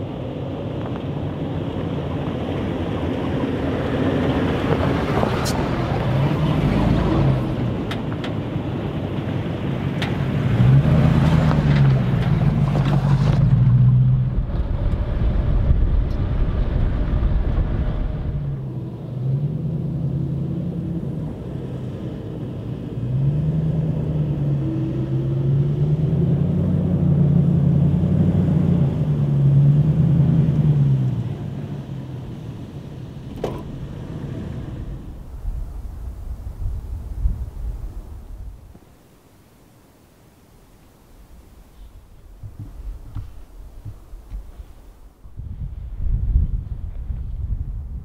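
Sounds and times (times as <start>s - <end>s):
car engine revving: 1.6s - 38.8s
wind noise hiss: 33.8s - 48.0s.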